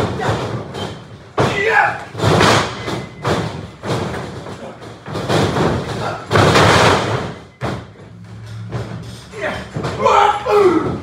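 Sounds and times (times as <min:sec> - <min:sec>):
bodies thudding on wrestling ring: 0:00.0 - 0:08.1.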